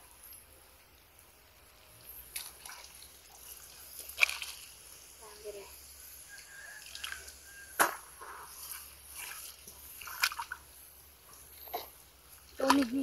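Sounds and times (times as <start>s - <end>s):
feet splashing in muddy water: 2.3s - 4.8s, 6.8s - 10.7s, 12.3s - 13.0s.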